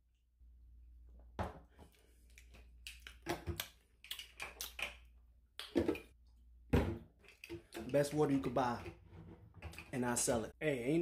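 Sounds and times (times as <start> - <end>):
lip smacks and mouth clicks: 2.3 - 5.8.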